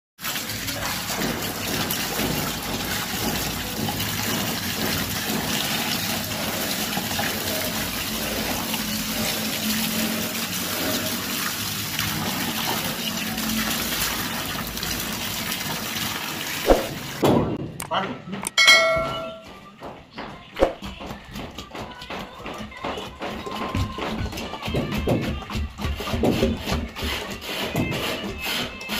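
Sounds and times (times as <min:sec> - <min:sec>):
water rushing and splashing: 0:00.2 - 0:17.2.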